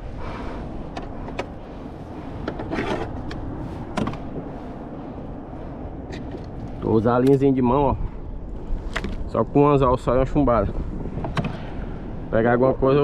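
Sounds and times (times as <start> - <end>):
low rush of wind and water: 0.0 - 13.0.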